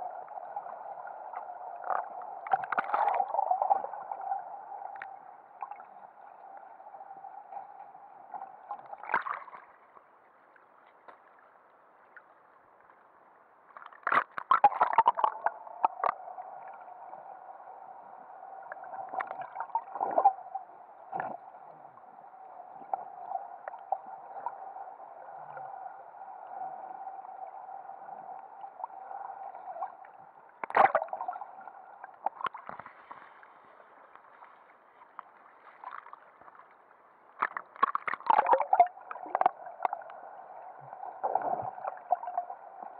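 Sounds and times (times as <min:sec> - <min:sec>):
water bubbling and splashing: 0:00.0 - 0:06.0, 0:08.4 - 0:09.8, 0:13.8 - 0:16.8, 0:18.7 - 0:20.5, 0:28.8 - 0:33.3, 0:37.4 - 0:42.9.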